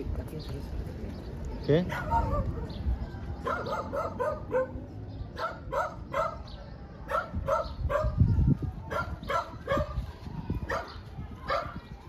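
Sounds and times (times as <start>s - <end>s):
dog barking: 1.9s - 2.8s, 3.4s - 4.8s, 5.4s - 6.5s, 7.1s - 8.2s, 8.9s - 10.0s, 10.7s - 11.8s.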